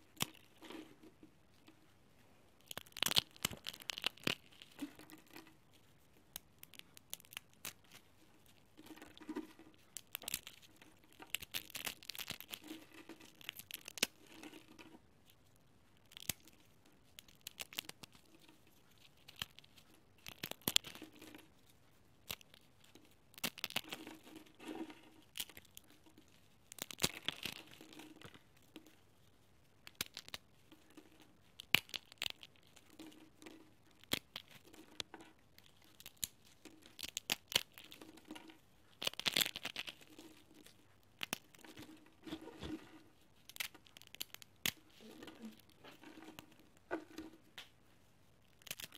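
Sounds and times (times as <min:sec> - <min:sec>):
dry noodles crackling and snapping: 0:00.0 - 0:00.8, 0:02.6 - 0:15.4, 0:16.0 - 0:47.8, 0:48.4 - 0:48.9.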